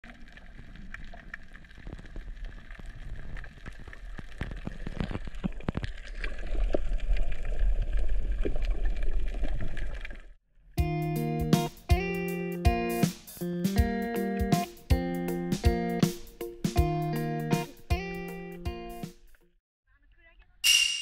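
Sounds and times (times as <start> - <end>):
low water rumble: 0.0 - 10.4
underwater clicks and crackles: 0.0 - 10.4.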